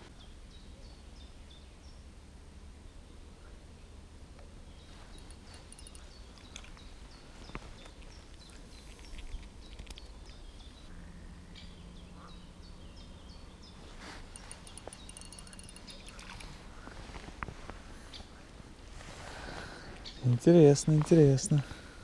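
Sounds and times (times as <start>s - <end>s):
songbirds singing: 0.0s - 2.1s, 2.7s - 17.0s, 17.8s - 22.0s.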